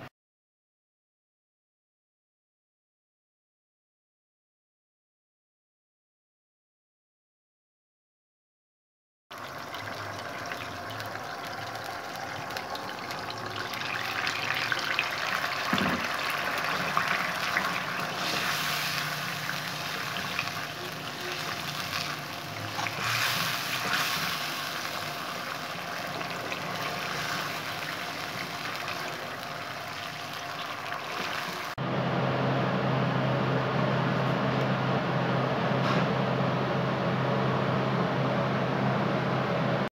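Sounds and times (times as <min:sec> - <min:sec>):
sauce bubbling in a wok: 0:09.3 - 0:31.8.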